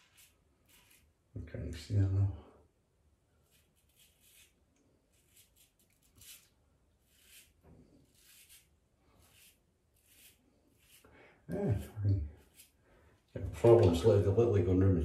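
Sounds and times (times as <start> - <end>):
razor scraping stubble: 0.0 - 1.1, 3.4 - 12.8.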